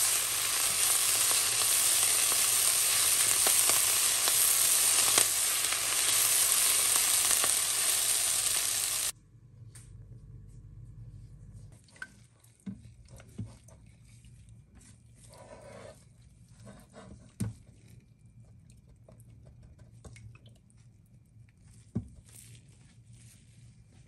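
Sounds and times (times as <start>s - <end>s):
low steady hum: 0.0s - 15.3s.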